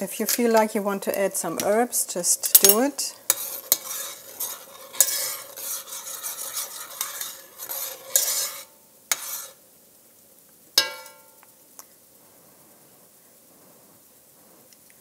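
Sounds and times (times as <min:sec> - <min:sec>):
metal spoon stirring in a pot: 0:00.0 - 0:09.6.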